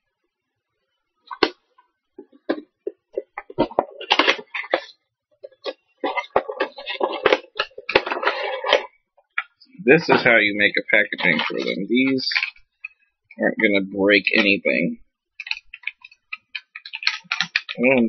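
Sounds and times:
packaging crinkling: 2.2 - 12.7, 15.4 - 17.9.

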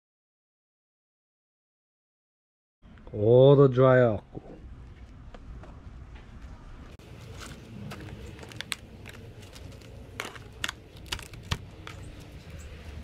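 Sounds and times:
dried fish strips clicking in tub: 8.3 - 12.3.

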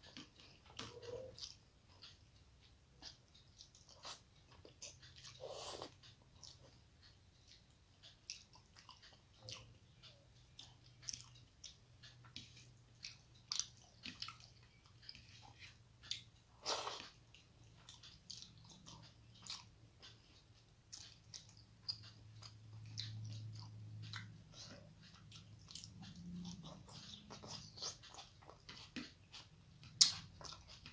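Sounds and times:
low steady hum: 0.0 - 30.9
person chewing food: 0.0 - 30.9
mouth clicks and smacks: 8.2 - 30.9.

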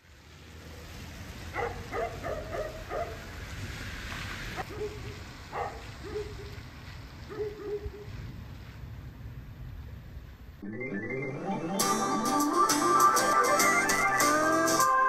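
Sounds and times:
rain hissing: 0.0 - 7.3
dog barking: 1.5 - 3.2, 4.6 - 6.6, 7.3 - 8.1.

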